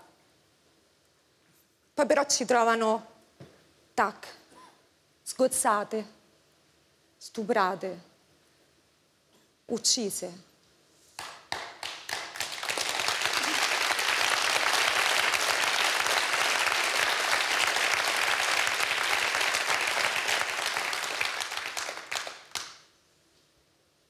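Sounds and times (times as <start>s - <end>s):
audience applauding: 11.2s - 22.8s.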